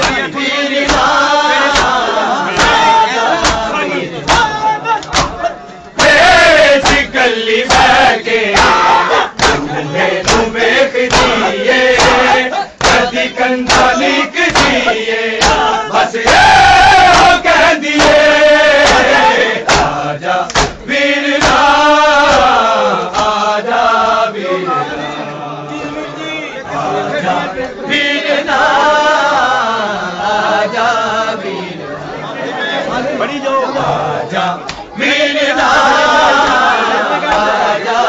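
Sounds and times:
hands slapping chests: 0.0s - 16.4s, 17.0s - 23.4s, 34.6s - 34.9s, 36.4s - 36.7s, 37.3s - 37.6s
men chanting in unison: 0.0s - 38.0s.

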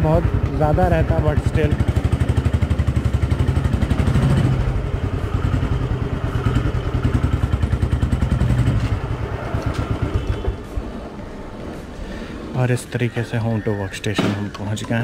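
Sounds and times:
motorcycle engine thumping: 14.1s - 15.0s.

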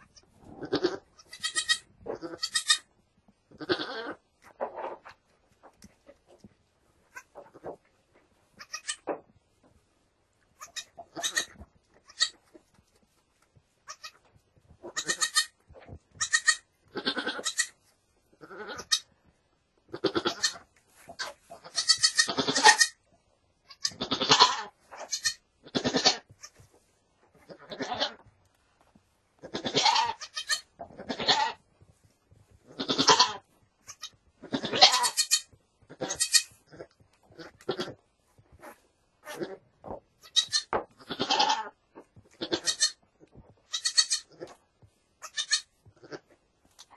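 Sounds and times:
goats bleating: 0.1s - 2.9s, 3.5s - 4.2s, 10.6s - 12.4s, 14.9s - 17.8s, 18.4s - 19.1s, 19.9s - 23.0s, 23.7s - 26.6s, 27.4s - 28.3s, 29.4s - 31.6s, 32.6s - 38.0s, 40.2s - 44.6s, 45.2s - 46.3s.

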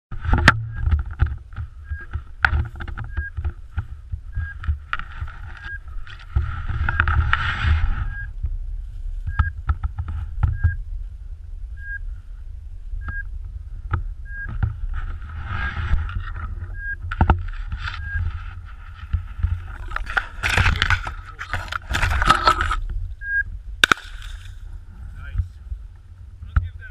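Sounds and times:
wind rumble on microphone: 0.1s - 26.9s
high electronic beeps: 4.3s - 4.6s, 10.5s - 10.8s, 11.8s - 12.1s, 13.0s - 13.3s, 14.2s - 14.6s, 16.7s - 17.0s, 18.0s - 18.3s, 23.2s - 23.5s
crunching through snow and grass: 17.4s - 23.1s.

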